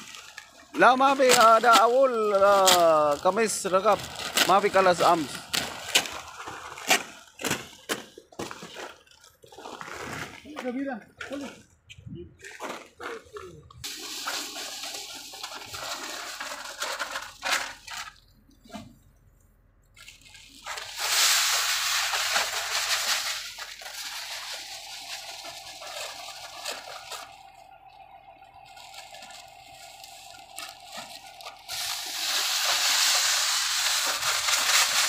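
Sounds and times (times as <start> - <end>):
seed pouring into hopper: 13.9 - 18.2, 20.4 - 27.4, 29.0 - 35.0.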